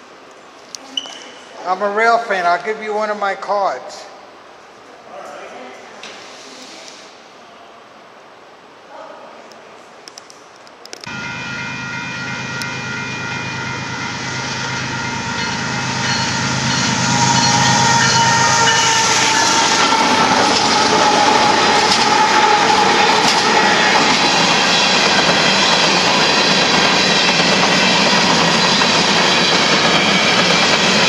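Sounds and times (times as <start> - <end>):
crossing bell ringing: 11.1 - 31.0
diesel locomotives running: 11.1 - 31.0
train wheel clatter: 14.7 - 31.0.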